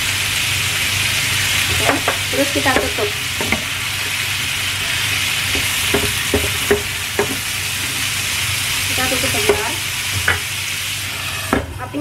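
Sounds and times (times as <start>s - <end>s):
food sizzling in a wok: 0.0s - 12.0s
spatula scraping and tapping wok: 1.6s - 4.2s, 4.8s - 8.1s, 9.3s - 10.5s.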